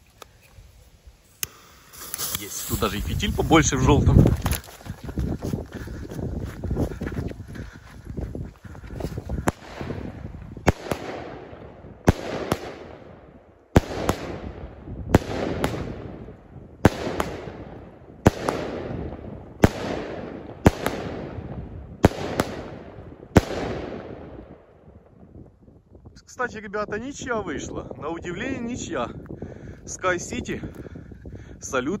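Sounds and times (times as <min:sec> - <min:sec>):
firework hiss and crackle: 0:00.0 - 0:04.9
firework bangs: 0:09.4 - 0:24.3.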